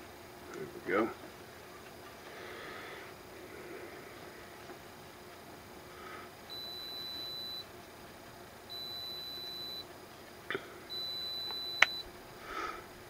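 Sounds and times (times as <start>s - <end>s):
high-pitched electronic beeps: 6.5s - 7.6s, 8.7s - 9.8s, 10.9s - 12.0s
sharp click: 11.4s - 12.0s.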